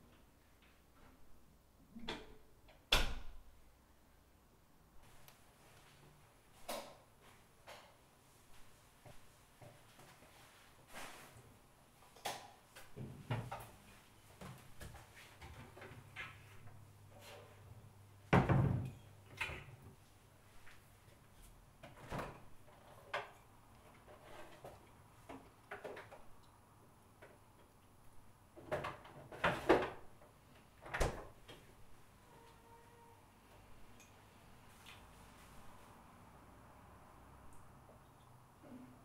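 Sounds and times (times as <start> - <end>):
cupboard doors opening and shutting: 18.3 - 19.8, 28.6 - 30.1, 30.8 - 31.7
fridge door opening and shutting: 28.6 - 30.1, 30.8 - 31.6.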